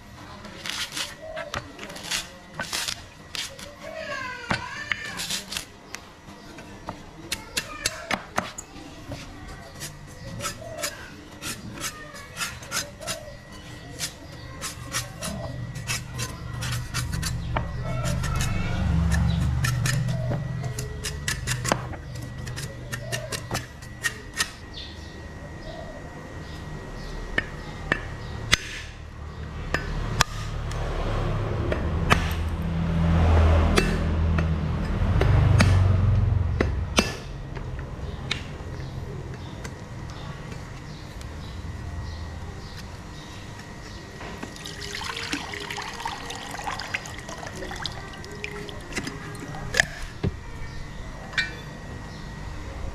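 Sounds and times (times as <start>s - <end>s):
hand tool scraping coconut husk: 0.6s - 3.8s, 9.2s - 24.6s.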